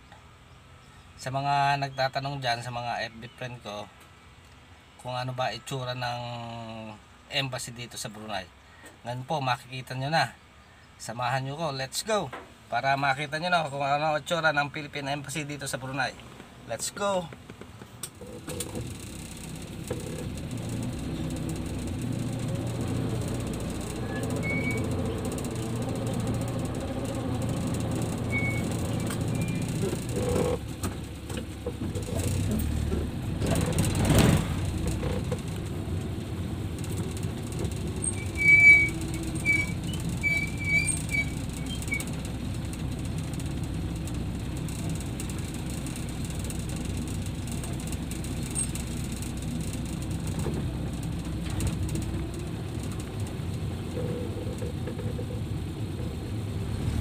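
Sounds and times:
road noise: 0:00.0 - 0:57.0
car engine running: 0:16.3 - 0:57.0
short high squeaks: 0:18.2 - 0:35.6, 0:36.8 - 0:43.5, 0:44.6 - 0:50.4, 0:51.6 - 0:56.2.

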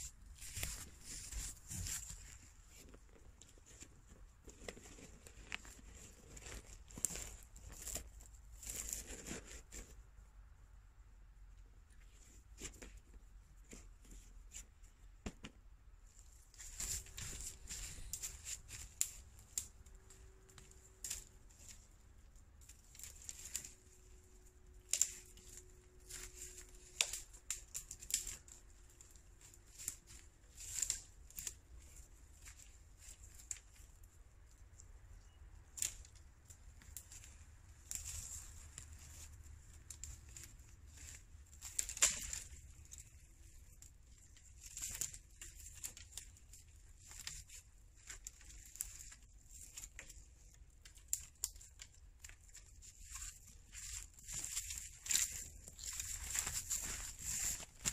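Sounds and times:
dry twigs snapping: 0:16.6 - 0:21.9, 0:22.6 - 0:57.9.

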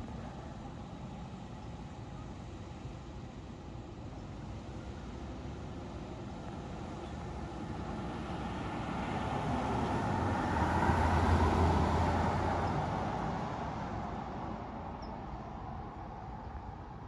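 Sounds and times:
vehicle driving past: 0:09.0 - 0:13.8.

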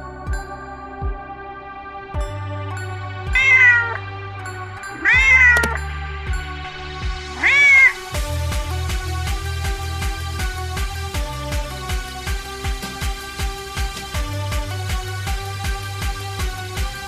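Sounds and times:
background music with low beat: 0:00.0 - 0:17.0
cat meowing: 0:03.3 - 0:04.0, 0:04.9 - 0:05.9, 0:07.3 - 0:08.2.

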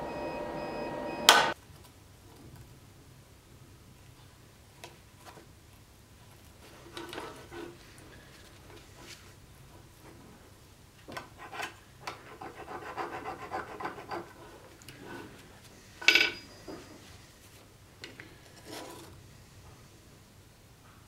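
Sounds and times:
ringing metal clink: 0:16.1 - 0:16.6.

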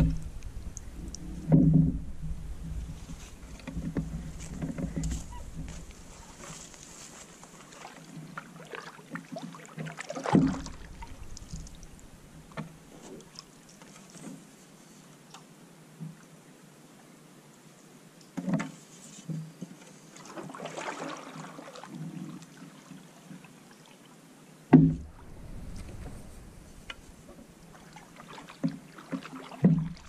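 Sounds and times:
loud thump: 0:00.0 - 0:06.4, 0:10.3 - 0:12.7, 0:24.7 - 0:27.8
paddle strokes in water: 0:00.0 - 0:15.2, 0:18.4 - 0:23.6, 0:24.8 - 0:30.0
light knocks on canoe: 0:10.3 - 0:12.7, 0:24.8 - 0:27.7.

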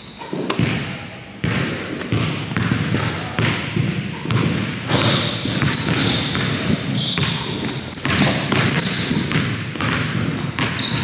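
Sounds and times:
shoe squeaks: 0:00.0 - 0:00.5, 0:04.1 - 0:09.6, 0:10.5 - 0:11.0
basketball bouncing on wood floor: 0:00.4 - 0:11.0.

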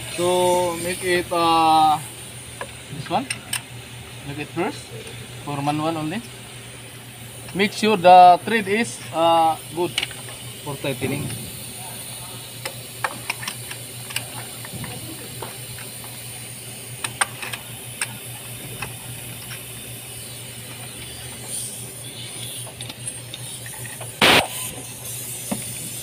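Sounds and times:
steady hum and hiss: 0:00.0 - 0:26.0
socket wrench clicks and taps: 0:12.6 - 0:14.3.

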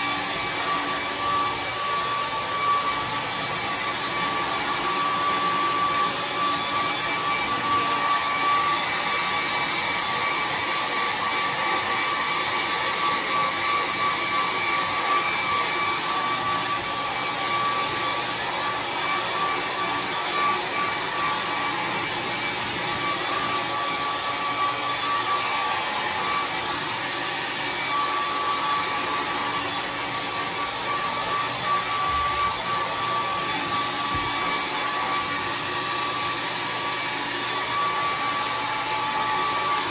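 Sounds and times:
hair dryer running: 0:00.0 - 0:39.9.

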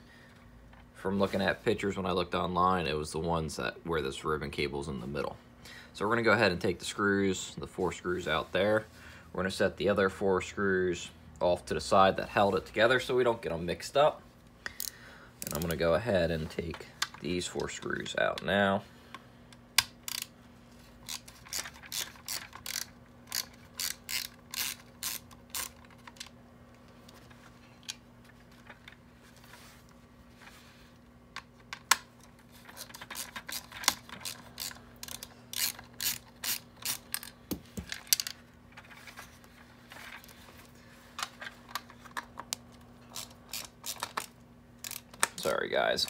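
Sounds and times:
socket ratchet clicking: 0:19.8 - 0:20.3, 0:21.0 - 0:26.3, 0:32.8 - 0:37.4, 0:43.1 - 0:45.4.

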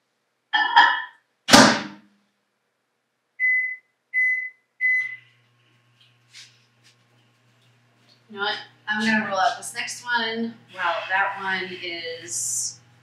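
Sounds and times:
keypad beeps: 0:03.4 - 0:05.2
microwave oven humming: 0:03.4 - 0:13.0.

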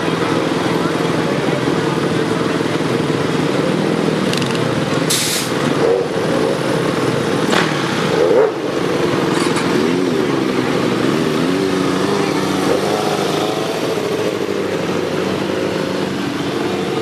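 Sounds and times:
vehicle engine running: 0:00.0 - 0:17.0
short hiss: 0:05.1 - 0:05.6.

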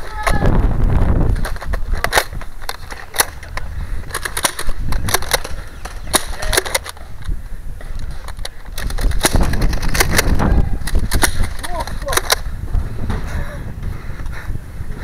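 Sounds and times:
foam dart blasters clicking and snapping: 0:01.3 - 0:07.0, 0:08.3 - 0:12.5.

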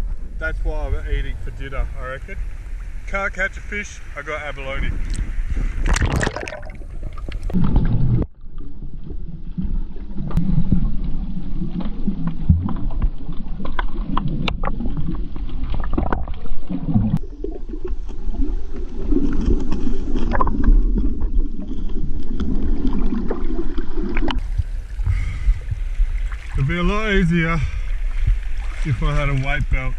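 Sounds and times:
muffled underwater rumble: 0:00.0 - 0:29.9
water surface splashing: 0:02.1 - 0:29.9
sharp underwater clicks: 0:11.8 - 0:17.2.

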